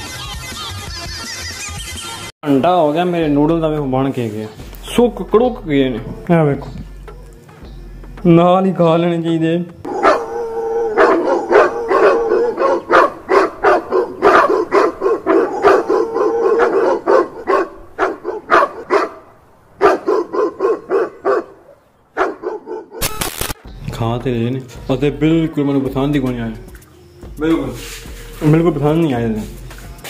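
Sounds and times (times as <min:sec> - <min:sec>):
dog barking rapidly: 0:09.8 - 0:23.1
harsh noise burst: 0:23.0 - 0:23.6.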